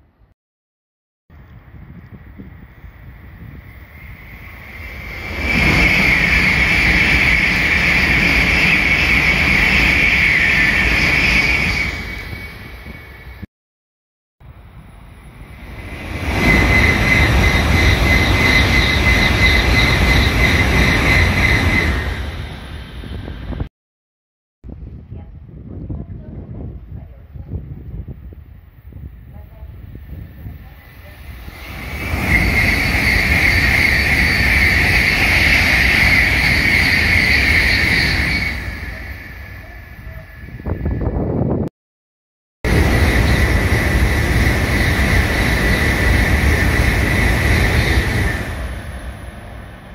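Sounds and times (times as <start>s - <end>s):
high-speed train rushing past: 1.5s - 13.5s, 14.4s - 23.7s, 26.3s - 41.7s, 42.7s - 49.9s
high whistling tone: 3.8s - 13.5s, 15.6s - 23.4s, 29.9s - 41.5s.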